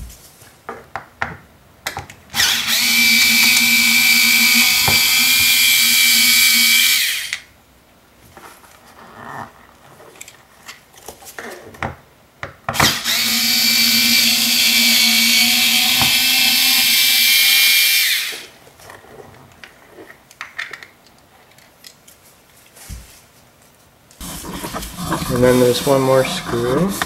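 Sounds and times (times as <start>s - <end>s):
electric screwdriver motor whine: 2.4s - 7.4s, 12.8s - 18.5s.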